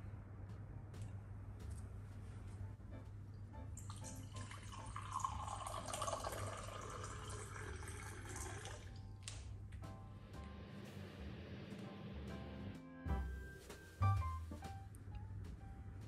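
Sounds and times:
water pouring into a glass: 0:03.8 - 0:09.0.

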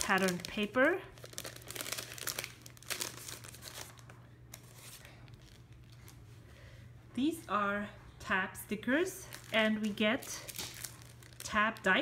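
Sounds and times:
plastic bag crinkling: 0:00.0 - 0:06.2, 0:09.2 - 0:12.0.

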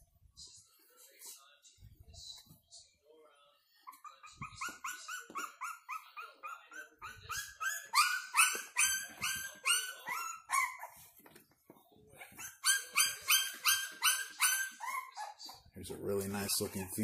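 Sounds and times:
puppies yelping: 0:03.9 - 0:11.0, 0:12.3 - 0:15.6, 0:16.3 - 0:17.0.

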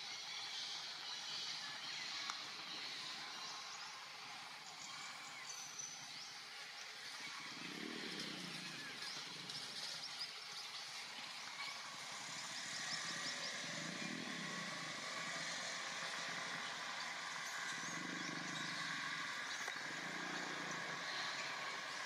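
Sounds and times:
distant traffic hum: 0:11.2 - 0:22.0.

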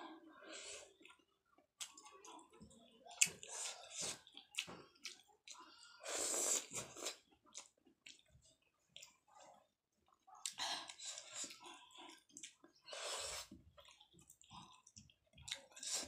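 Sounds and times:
wet chewing and lip smacks: 0:06.9 - 0:12.8, 0:13.4 - 0:16.0.

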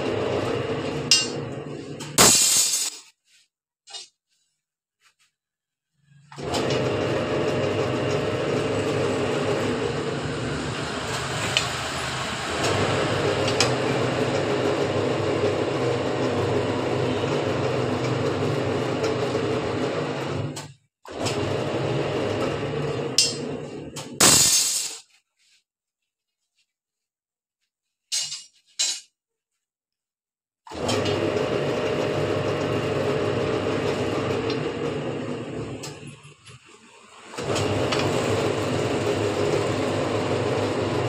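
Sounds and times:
bending machine humming: 0:00.0 - 0:02.4, 0:06.4 - 0:20.6, 0:37.3 - 0:41.0.

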